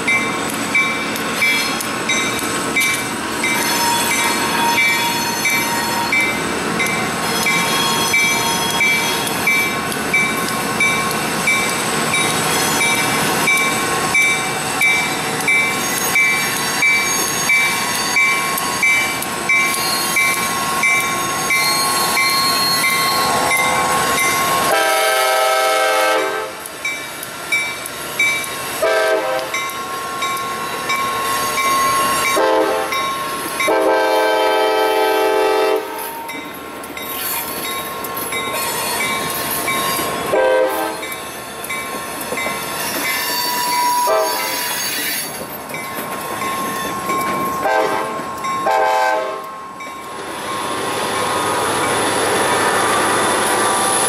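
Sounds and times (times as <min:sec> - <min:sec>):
crossing bell ringing: 0:00.0 - 0:24.9, 0:29.4 - 0:34.0, 0:35.7 - 0:52.2
diesel locomotives approaching: 0:00.0 - 0:54.0
locomotive horn blasts: 0:24.6 - 0:26.6, 0:28.8 - 0:29.5, 0:32.3 - 0:33.0, 0:33.7 - 0:36.2, 0:40.3 - 0:41.0, 0:44.0 - 0:44.6, 0:47.6 - 0:49.5.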